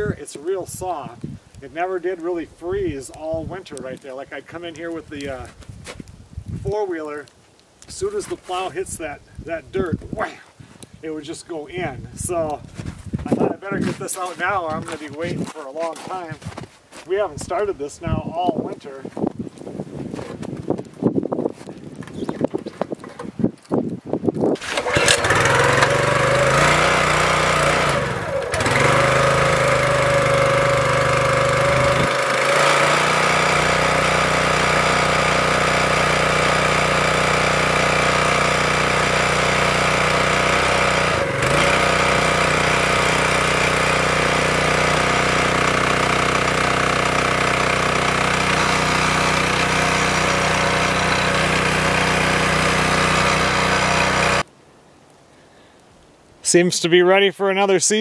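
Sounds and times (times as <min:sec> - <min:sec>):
small gas engine running: 0:24.6 - 0:54.4.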